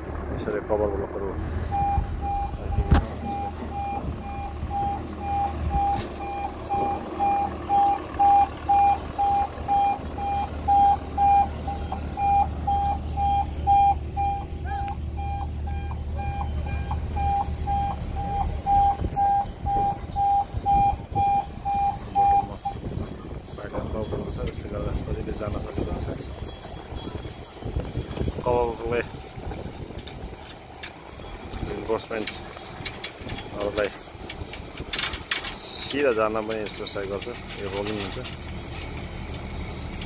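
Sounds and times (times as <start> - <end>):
engine rumbling: 0.0 - 40.0
machine warning beeper: 1.7 - 30.5.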